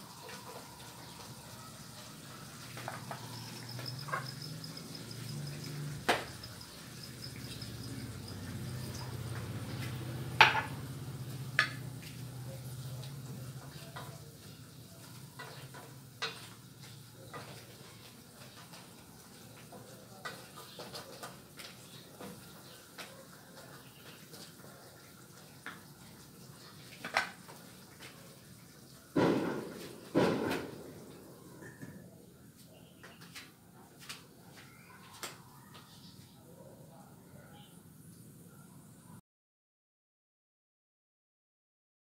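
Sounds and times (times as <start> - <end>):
soft sizzle of cooking: 0.0 - 39.2
wooden spoon knocking on pan: 10.4 - 10.8, 29.2 - 32.0.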